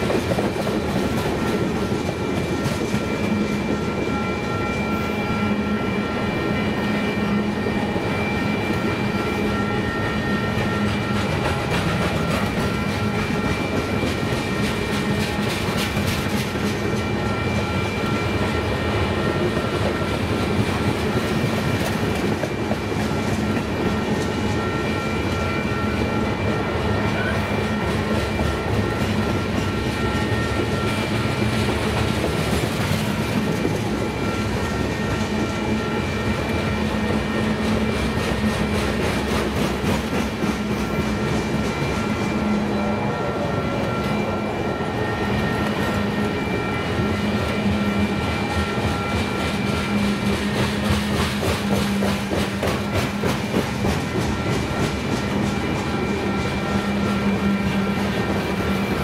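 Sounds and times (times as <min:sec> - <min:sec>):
train wheels clacking over rails: 0:00.0 - 0:59.0
faint high ringing tone: 0:03.0 - 0:14.6.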